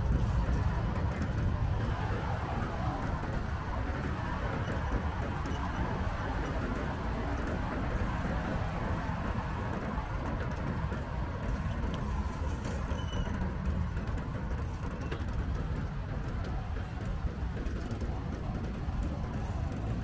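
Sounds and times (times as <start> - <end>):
wind rumbling on microphone: 0.0 - 20.0
road traffic hiss: 11.4 - 13.0.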